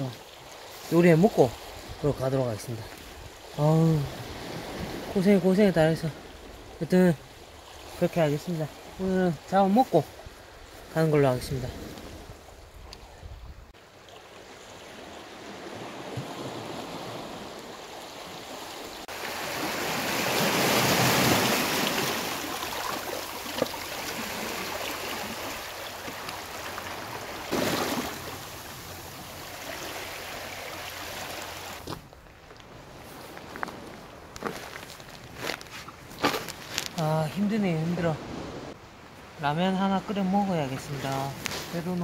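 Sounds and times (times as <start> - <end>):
sea waves washing on shore: 0.0 - 12.8, 13.9 - 42.0.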